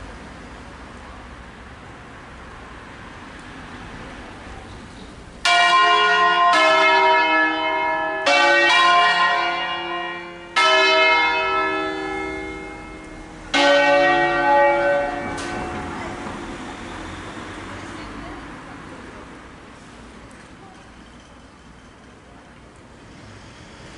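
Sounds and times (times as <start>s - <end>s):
church bell strokes: 5.4s - 16.9s.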